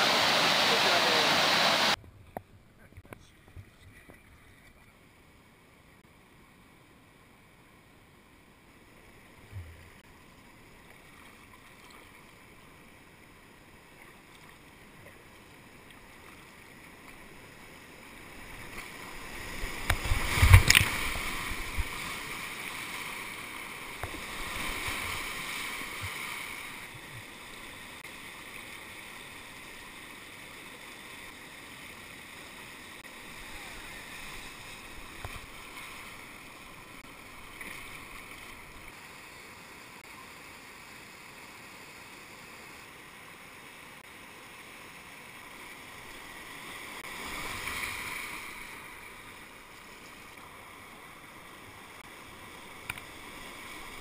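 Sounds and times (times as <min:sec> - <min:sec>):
whitewater rushing: 0:00.0 - 0:02.0.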